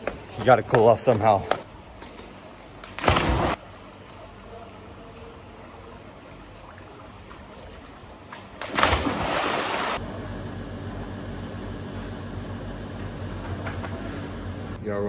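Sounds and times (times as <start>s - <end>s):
poolside background: 0.0s - 15.0s
person splashing into pool: 3.0s - 3.6s, 8.6s - 10.0s.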